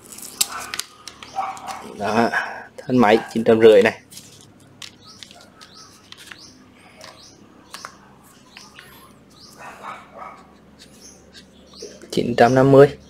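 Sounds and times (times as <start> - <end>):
small birds chirping: 0.2 - 13.0.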